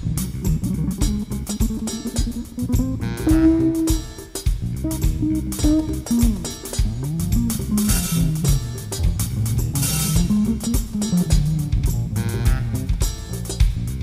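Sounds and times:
drum kit with cymbals: 0.0 - 14.0
electric bass line: 0.0 - 14.0.

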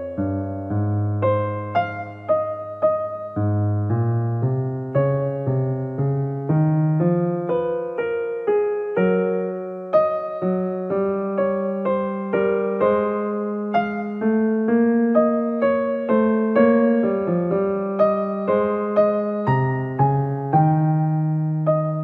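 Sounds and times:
piano music: 0.0 - 22.0.

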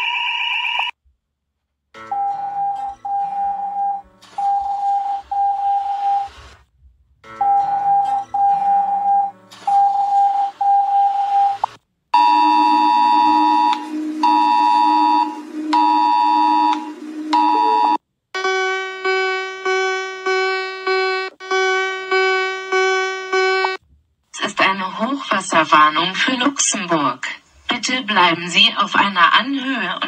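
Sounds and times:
electronic alert tone: 7.4 - 23.8
higher pulsing many-toned chord: 12.2 - 18.0
pulsing chord over low drone: 12.2 - 18.0.

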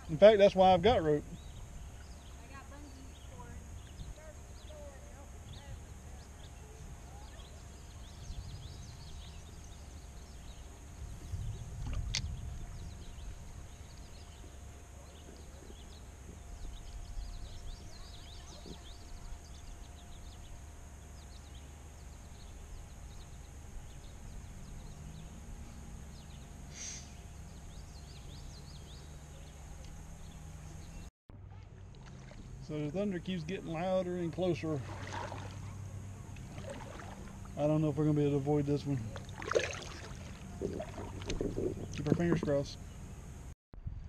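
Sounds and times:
river rumble: 23.7 - 43.2.

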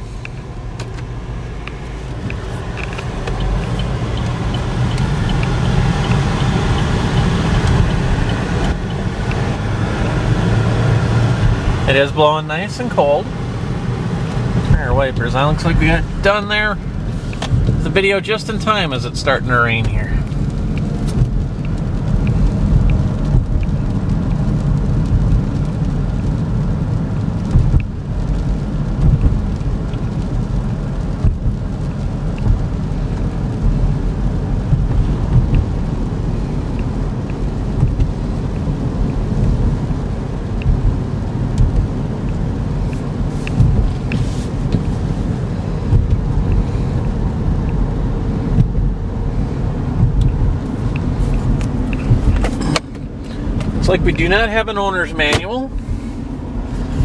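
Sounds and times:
rain on windshield: 0.0 - 57.0
tyres and engine rumble: 0.0 - 57.0
windshield wipers running: 0.0 - 57.0.

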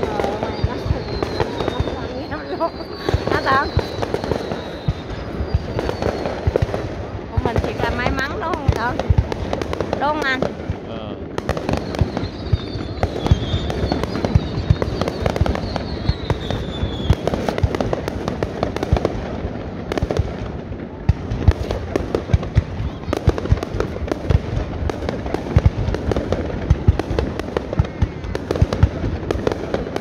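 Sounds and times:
firework whistle falling in pitch: 0.0 - 6.4, 11.7 - 17.2
fireworks bangs and pops: 0.0 - 30.0.

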